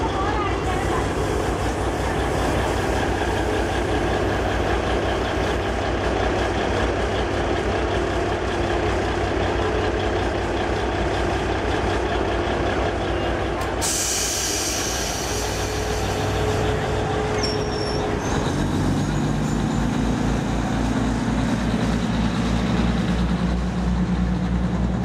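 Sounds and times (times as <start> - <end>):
diesel train engine rumbling: 0.0 - 25.0
air hiss: 13.8 - 16.4.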